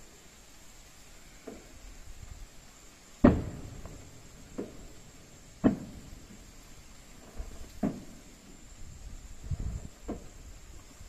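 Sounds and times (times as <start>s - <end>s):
distant fireworks booming: 3.0s - 11.0s.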